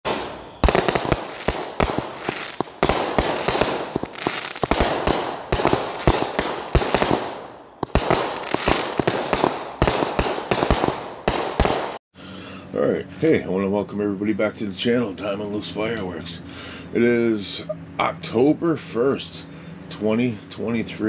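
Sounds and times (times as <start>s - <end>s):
firework bangs and crackling: 0.0s - 12.0s.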